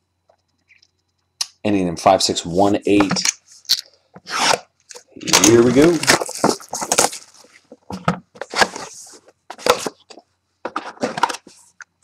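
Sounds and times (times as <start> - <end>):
cardboard packaging crackling: 5.3 - 7.8.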